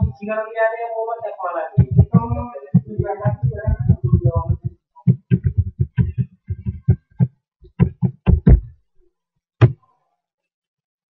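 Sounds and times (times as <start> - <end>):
keyboard typing: 1.8 - 8.7.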